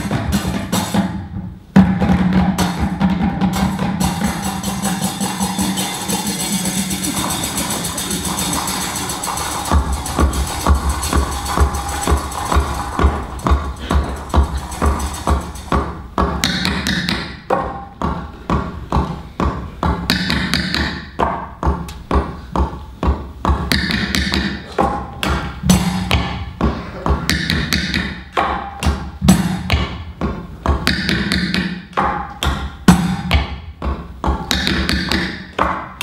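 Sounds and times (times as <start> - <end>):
music: 0.0 - 36.0
tap shoes on stage floor: 9.2 - 36.0.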